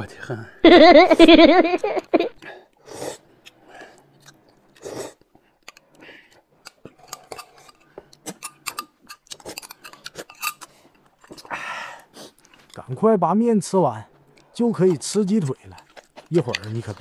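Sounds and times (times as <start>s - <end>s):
person slurping: 4.8s - 5.2s.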